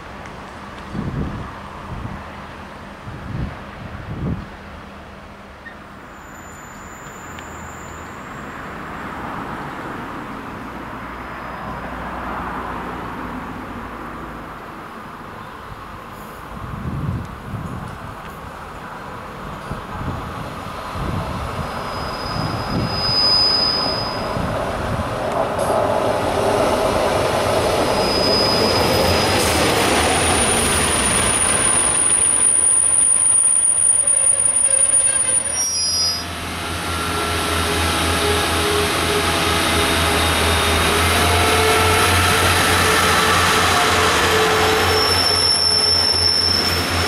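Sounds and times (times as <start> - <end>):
train wheel squeal: 5.6 - 8.8, 11.2 - 11.9, 21.6 - 24.6, 27.6 - 47.0.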